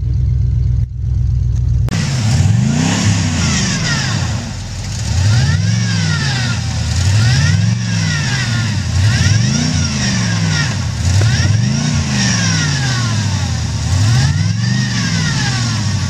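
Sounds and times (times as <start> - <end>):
engine revving: 1.8 - 16.0.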